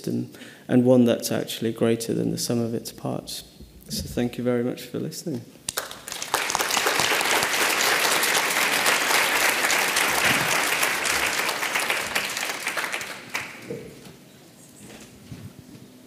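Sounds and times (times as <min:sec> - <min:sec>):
audience applause: 0:05.7 - 0:14.0.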